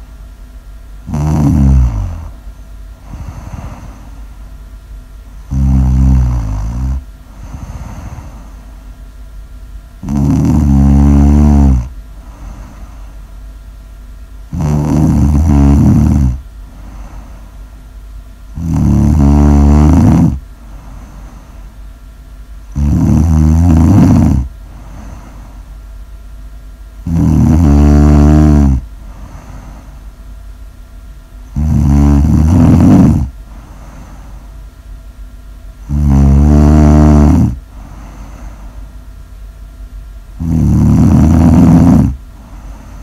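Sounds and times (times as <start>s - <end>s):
faint steady background noise: 0.0s - 43.0s
person snoring loudly: 1.0s - 2.4s, 3.0s - 4.3s, 5.4s - 8.7s, 10.0s - 13.1s, 14.5s - 17.4s, 18.6s - 21.6s, 22.7s - 25.6s, 27.0s - 30.0s, 31.5s - 34.4s, 35.8s - 38.6s, 40.4s - 43.0s.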